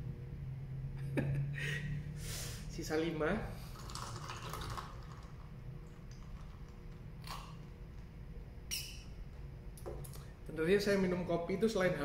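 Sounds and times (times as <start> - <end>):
low room hum: 0.0 - 12.0
straw stirring iced coffee: 3.7 - 7.6.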